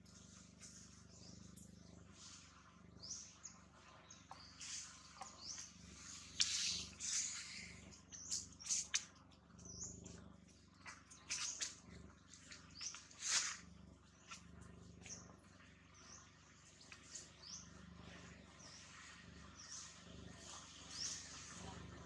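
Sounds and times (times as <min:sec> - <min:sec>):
animal chirps and squeaks: 0:04.2 - 0:10.2, 0:10.8 - 0:14.4.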